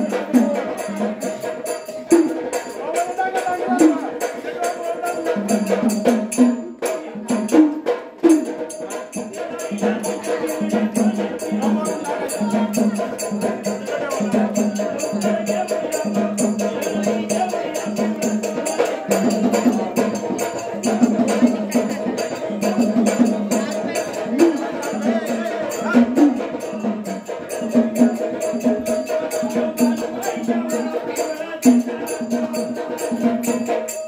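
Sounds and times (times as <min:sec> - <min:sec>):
hand cymbals and drum beat: 0:00.0 - 0:34.0
person singing: 0:06.6 - 0:33.9.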